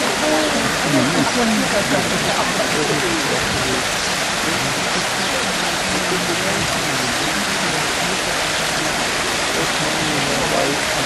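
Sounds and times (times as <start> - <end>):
faint voices: 0.0 - 11.0
water rushing over stone step: 0.0 - 11.0.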